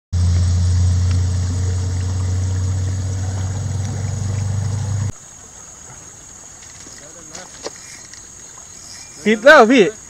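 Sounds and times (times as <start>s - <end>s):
loud low hum: 0.1s - 5.2s
river water flowing: 0.2s - 10.0s.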